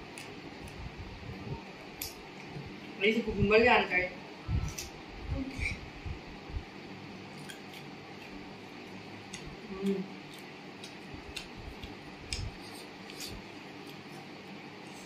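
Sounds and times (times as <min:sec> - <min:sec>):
cucumber being chewed: 0:07.3 - 0:15.0.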